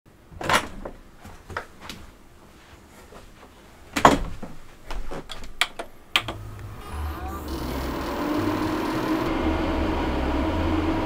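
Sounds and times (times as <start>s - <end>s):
knocks and thumps of handling: 3.9s - 6.4s
sharp clicks: 5.6s - 6.9s.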